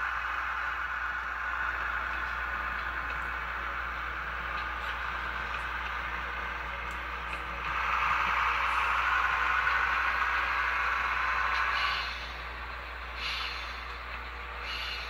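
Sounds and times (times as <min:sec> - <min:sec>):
diesel engine sound from small speaker: 0:00.0 - 0:15.0.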